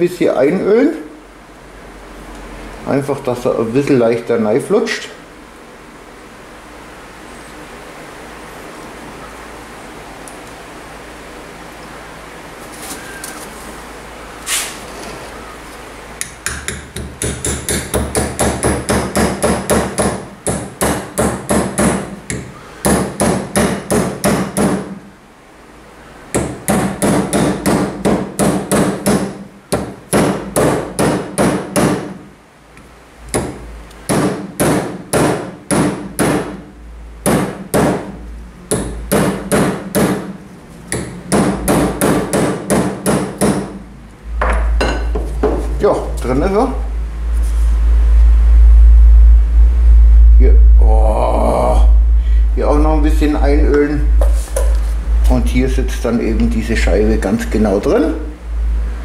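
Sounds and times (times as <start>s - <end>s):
hammer tapping metal: 16.2s - 24.9s, 26.4s - 32.0s.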